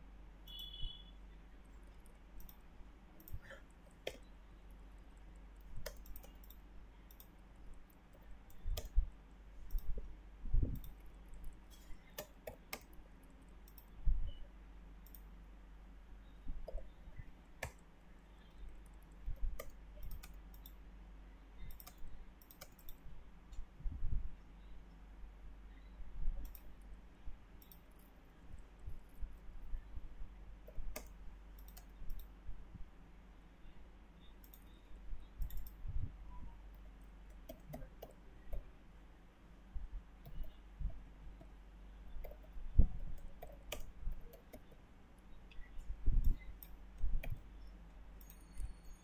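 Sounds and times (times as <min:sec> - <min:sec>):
steady low hum: 0:00.0 - 0:49.0
mouse and keyboard clicks: 0:01.7 - 0:02.6, 0:03.2 - 0:04.3, 0:05.2 - 0:09.1, 0:09.7 - 0:10.0, 0:10.6 - 0:14.4, 0:17.6 - 0:17.8, 0:18.4 - 0:20.8, 0:21.6 - 0:23.6, 0:26.4 - 0:26.8, 0:30.6 - 0:32.3, 0:35.4 - 0:35.8, 0:36.7 - 0:38.7, 0:42.2 - 0:44.8.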